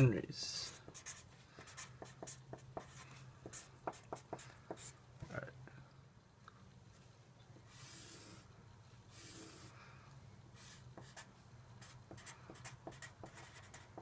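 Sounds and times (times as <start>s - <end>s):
marker scratching on paper: 0.6s - 5.0s, 7.7s - 8.5s, 9.1s - 9.8s, 10.6s - 14.0s.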